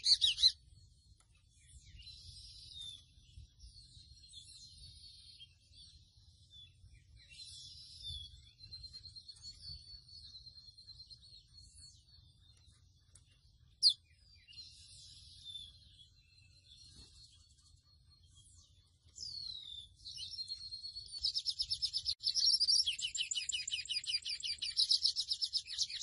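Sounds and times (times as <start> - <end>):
songbird singing varied song: 0.0 - 26.0.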